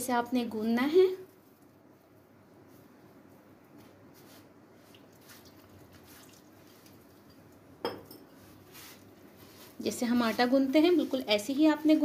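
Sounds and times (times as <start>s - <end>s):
hand squishing dough: 8.4s - 12.0s.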